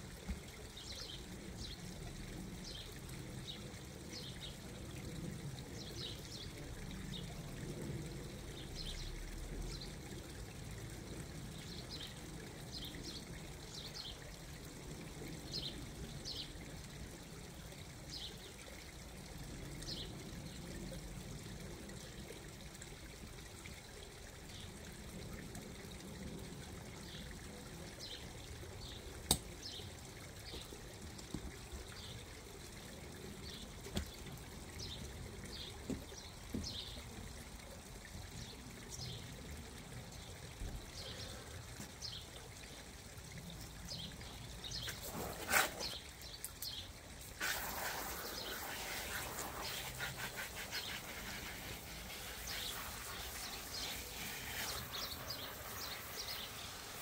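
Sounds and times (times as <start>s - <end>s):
hose water trickling: 0.0s - 57.0s
water spray splashing on vinyl: 44.7s - 57.0s.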